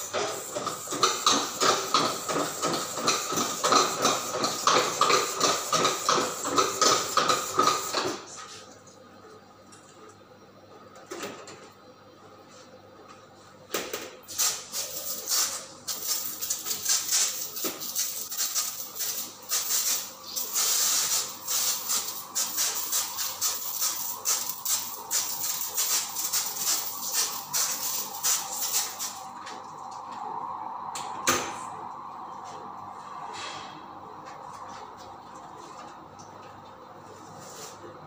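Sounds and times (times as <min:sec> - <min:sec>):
sprayer hissing in spurts: 0:14.3 - 0:29.2.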